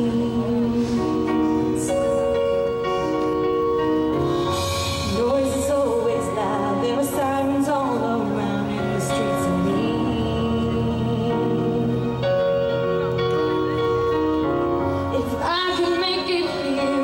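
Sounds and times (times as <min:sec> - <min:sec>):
woman singing into a microphone: 0:00.0 - 0:03.0, 0:04.5 - 0:12.7, 0:14.9 - 0:17.0
slow backing track chords: 0:00.0 - 0:17.0.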